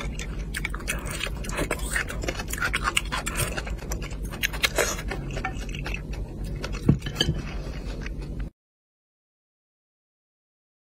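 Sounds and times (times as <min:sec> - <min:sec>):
wet mouth clicks and chewing: 0:00.0 - 0:07.1
utensils clinking on a dish: 0:06.8 - 0:07.6.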